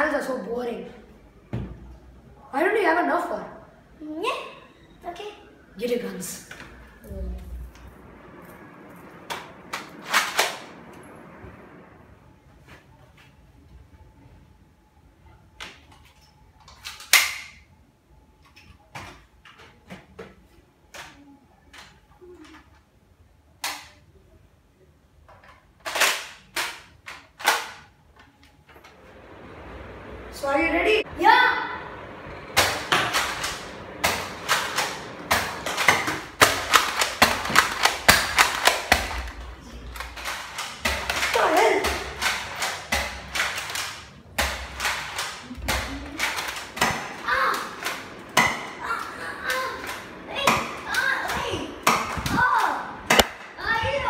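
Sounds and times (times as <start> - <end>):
foam-dart blasters clacking and firing: 32.3 - 54.0.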